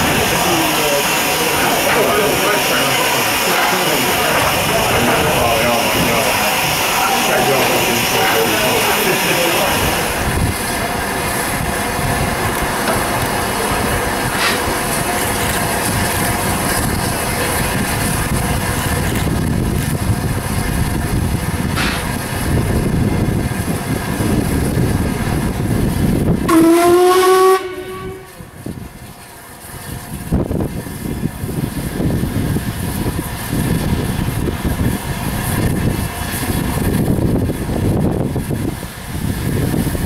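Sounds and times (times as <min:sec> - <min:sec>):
steam train running: 0:00.0 - 0:40.0
steam whistle blast: 0:26.5 - 0:28.5.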